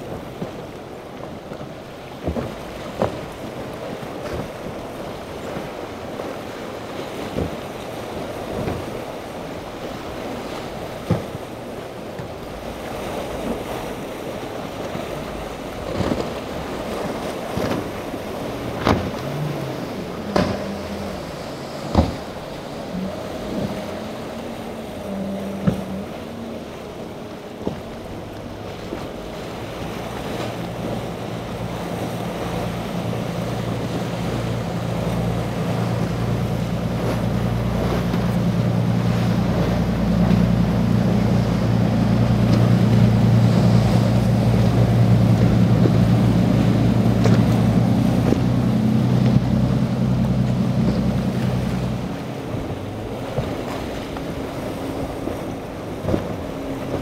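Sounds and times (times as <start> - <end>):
outboard boat engines: 0.0 - 57.0
splashing waves: 0.0 - 57.0
wind on microphone: 14.5 - 57.0.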